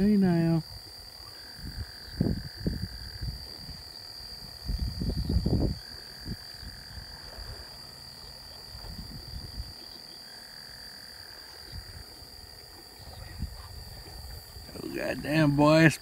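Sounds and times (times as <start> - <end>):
insects droning: 0.0 - 16.0
low insect trill: 0.0 - 16.0
microphone handling rumble: 4.6 - 7.6, 8.7 - 9.8.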